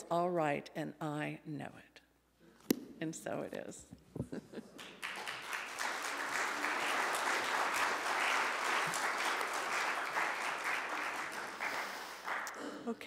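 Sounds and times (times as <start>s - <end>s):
audience applauding: 4.8s - 12.6s.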